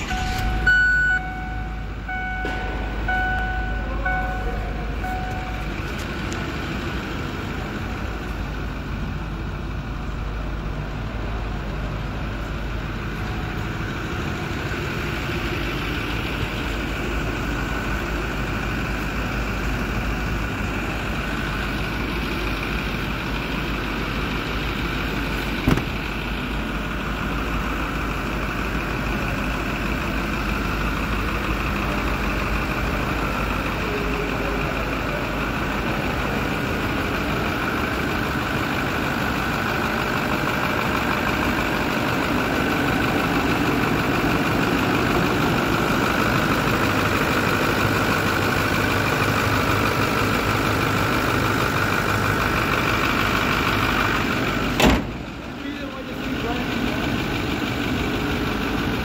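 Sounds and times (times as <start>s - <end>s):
dashboard warning chime beeping: 0.0s - 5.9s
truck engine idling: 0.0s - 59.0s
car door knock: 25.6s - 26.0s.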